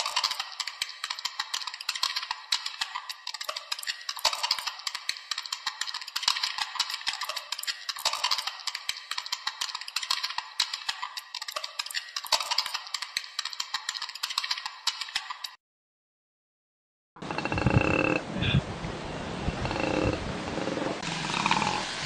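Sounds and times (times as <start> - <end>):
rapid irregular clicking and crackling: 0.0 - 15.6.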